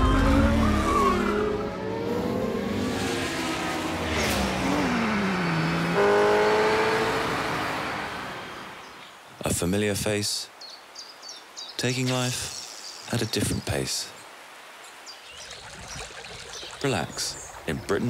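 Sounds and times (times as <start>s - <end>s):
car engine revving: 0.0s - 8.8s.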